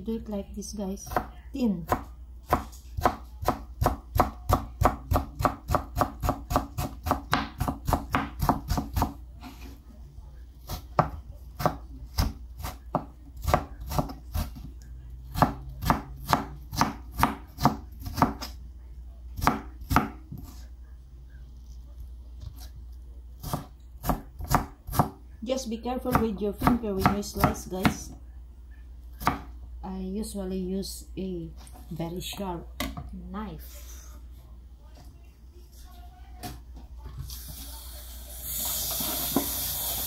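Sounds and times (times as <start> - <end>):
knife chopping on plastic board: 1.9 - 9.2, 10.7 - 14.7, 15.3 - 18.5, 19.4 - 20.5, 23.4 - 25.2, 29.2 - 29.5.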